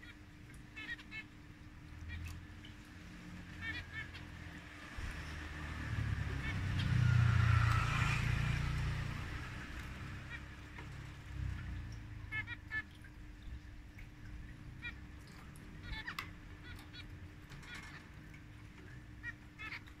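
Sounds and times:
finches giving short calls: 0:14.8 - 0:20.0.

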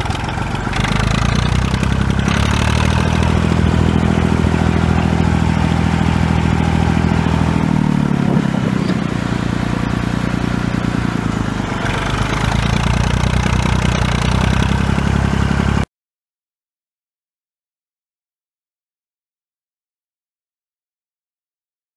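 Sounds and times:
tractor engine running: 0:00.0 - 0:15.9.

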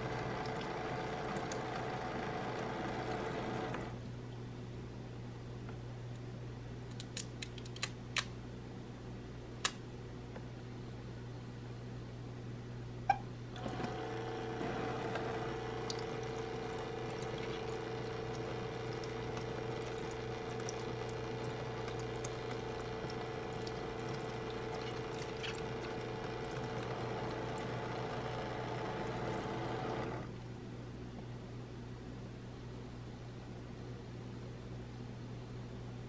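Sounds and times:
small electric pump humming: 0:00.0 - 0:04.0, 0:13.5 - 0:30.4
water running onto hands: 0:14.7 - 0:30.1.

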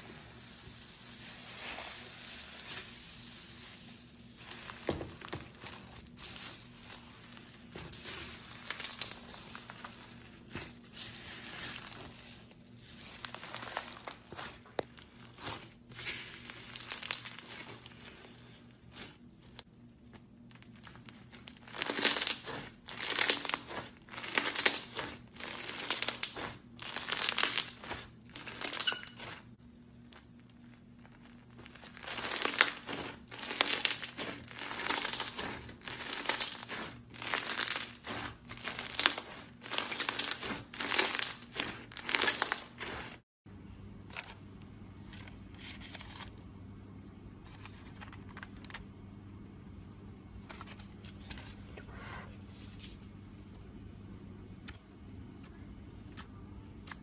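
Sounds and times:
slime crackling and crinkling: 0:00.0 - 0:43.3.

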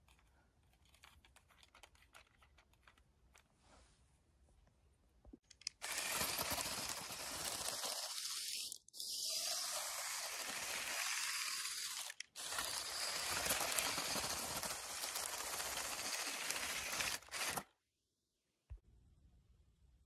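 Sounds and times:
toy tracks crunching snow: 0:05.6 - 0:17.7.

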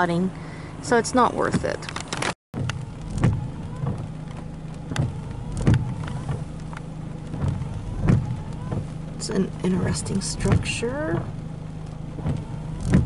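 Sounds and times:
car interior hum: 0:00.0 - 0:13.0
sharp taps and knocks: 0:02.6 - 0:09.0.

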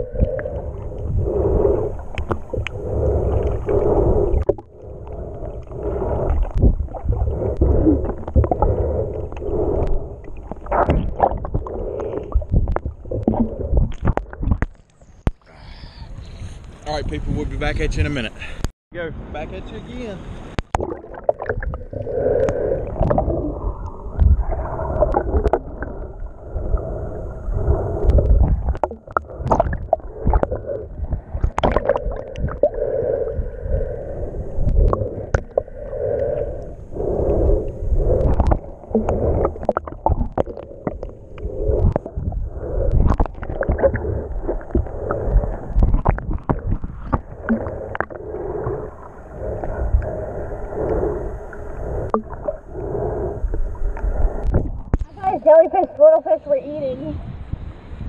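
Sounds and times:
muffled underwater gurgling: 0:00.0 - 0:14.8, 0:20.7 - 0:57.2
small underwater clicks and knocks: 0:06.3 - 0:15.5, 0:20.5 - 0:21.8, 0:28.0 - 0:32.7, 0:34.6 - 0:48.2, 0:52.0 - 0:52.6, 0:53.5 - 0:55.2.

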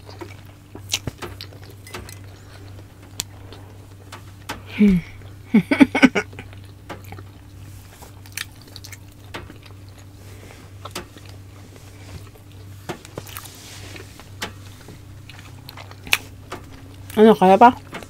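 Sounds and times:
low steady hum: 0:00.0 - 0:18.0
wet chewing mouth clicks: 0:06.3 - 0:07.5, 0:08.2 - 0:10.2.

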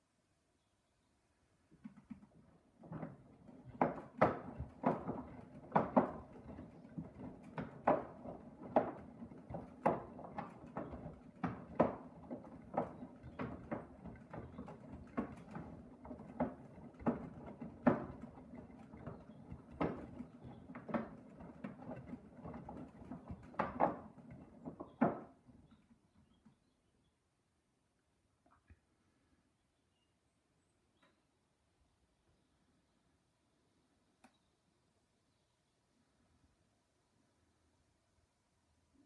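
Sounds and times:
washing machine drum tumbling: 0:01.8 - 0:25.9
sloshing knocks and clacks: 0:01.8 - 0:26.6.

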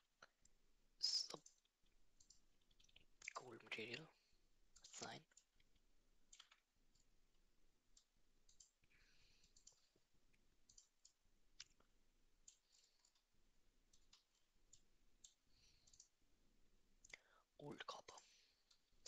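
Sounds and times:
faint computer mouse clicks: 0:13.9 - 0:16.1.

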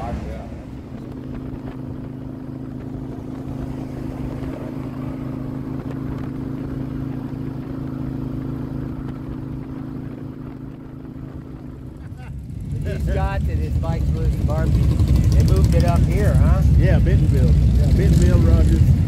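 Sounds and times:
wind noise: 0:00.0 - 0:12.0
motorcycle engine running: 0:00.0 - 0:19.0
road noise: 0:00.0 - 0:19.0.

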